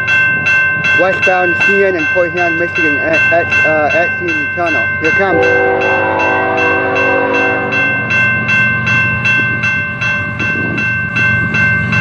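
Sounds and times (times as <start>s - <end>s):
railroad crossing bell ringing: 0.0s - 12.0s
locomotive horn: 5.3s - 8.0s.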